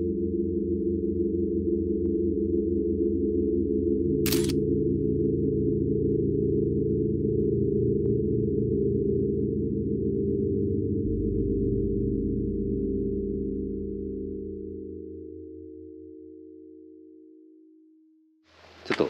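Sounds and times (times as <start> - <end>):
eerie low drone: 4.8 - 16.2.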